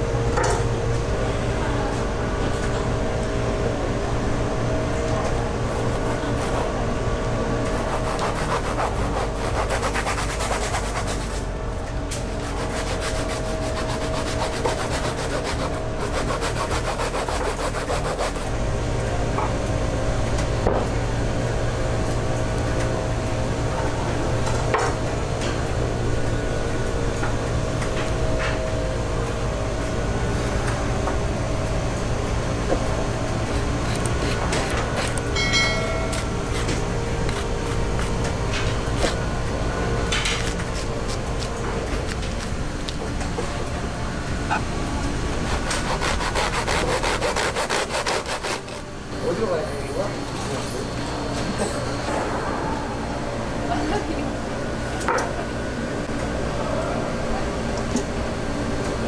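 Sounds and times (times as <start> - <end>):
low steady hum: 0.0 - 59.0
knife scraping fish skin: 5.7 - 6.7, 7.7 - 11.4, 12.3 - 18.5, 33.5 - 35.2, 45.3 - 48.8.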